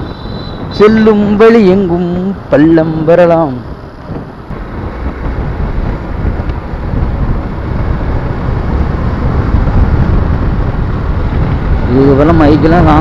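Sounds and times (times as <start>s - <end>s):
motorcycle engine: 0.0s - 13.0s
wind buffeting microphone: 0.0s - 13.0s.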